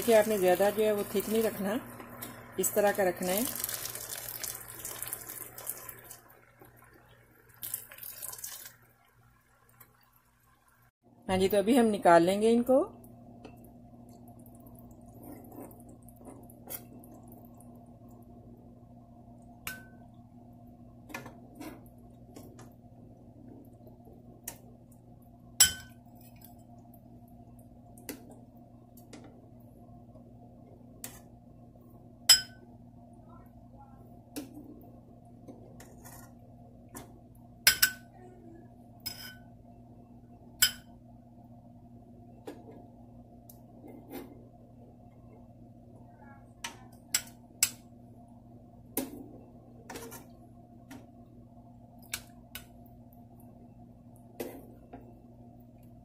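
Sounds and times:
faint steady hum: 0.0 - 56.0
spoon clinking glass bowl: 25.6 - 26.0, 32.3 - 32.6.

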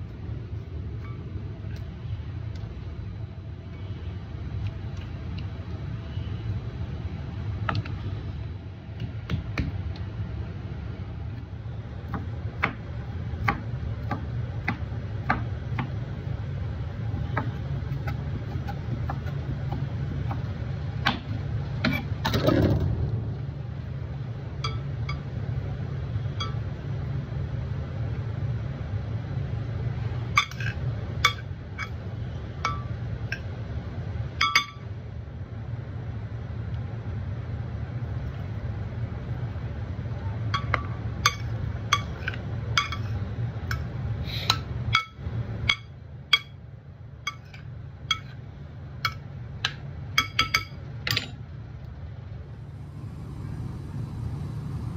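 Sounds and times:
low hum: 19.6 - 27.4, 51.4 - 54.9.

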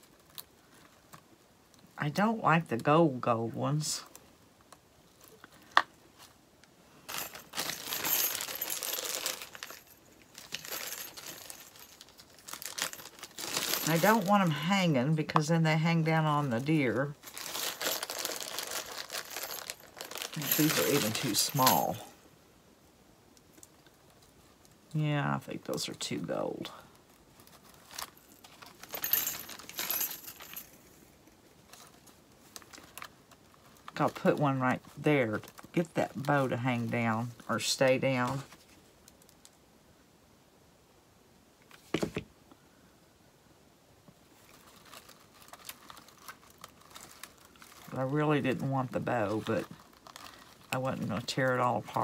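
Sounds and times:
bag crinkling: 7.0 - 14.7, 16.3 - 22.2, 27.0 - 30.9, 44.4 - 52.0
rustling and light clinking: 7.0 - 22.2, 26.7 - 39.6, 44.4 - 52.0
pine cones rustling and clicking: 7.1 - 14.6, 44.4 - 52.0.

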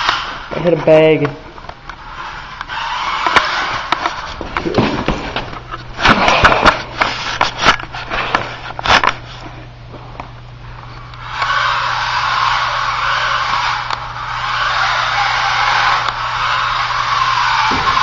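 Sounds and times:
toy car motor whirring: 11.2 - 17.7.

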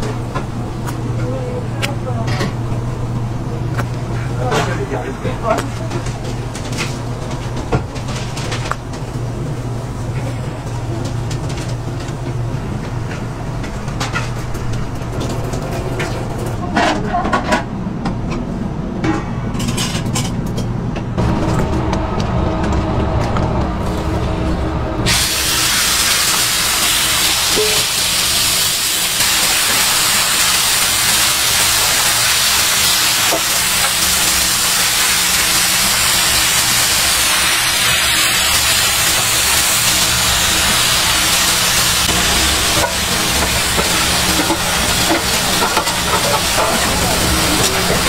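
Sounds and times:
low hum: 18.3 - 27.7
meat sizzling on griddle: 25.1 - 48.0.

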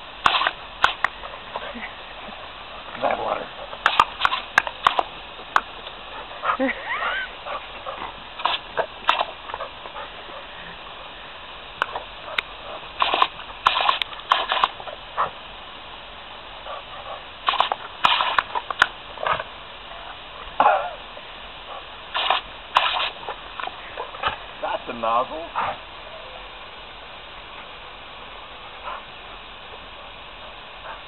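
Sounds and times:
hose jet hissing: 0.0 - 15.6, 17.3 - 19.7, 21.2 - 26.0
dog snapping at water spray: 0.2 - 1.2, 3.8 - 5.7, 8.4 - 9.6, 13.0 - 14.8, 17.4 - 19.5, 22.1 - 24.4.

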